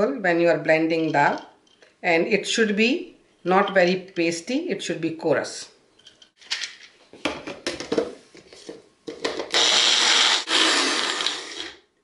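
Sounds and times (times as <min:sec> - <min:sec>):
blender grinding: 0:09.2 - 0:11.9.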